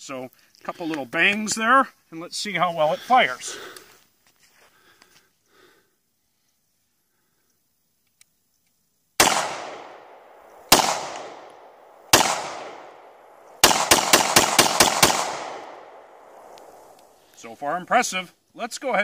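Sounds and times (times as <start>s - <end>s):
pistol shots echoing: 9.2s - 17.2s.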